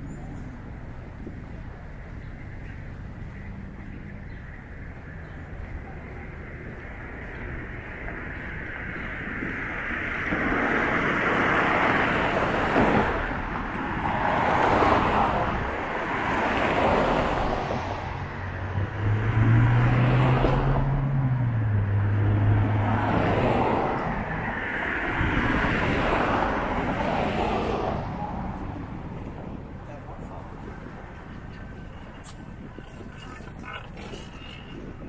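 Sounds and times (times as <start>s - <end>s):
cars passing close by: 0.0s - 35.0s.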